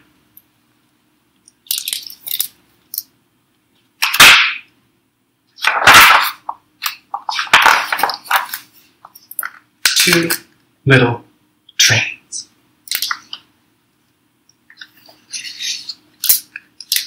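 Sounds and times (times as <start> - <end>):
paper page swishes: 5.6 - 9.1
book clicks and rustles: 5.6 - 9.6.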